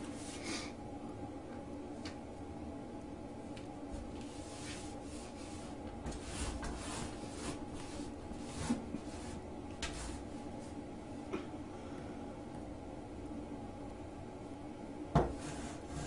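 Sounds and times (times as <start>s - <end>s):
rug scraping on tile floor: 4.1s - 10.4s, 15.3s - 16.0s.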